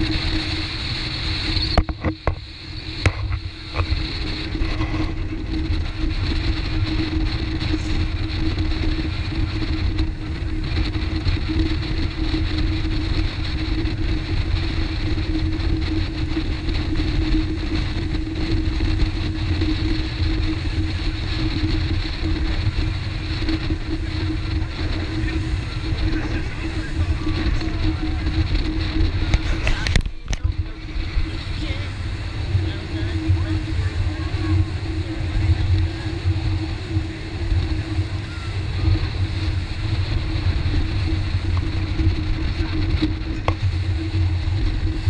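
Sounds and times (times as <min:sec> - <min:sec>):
motorboat engine drone: 0:00.0 - 0:45.0
water rushing against hull: 0:00.0 - 0:45.0.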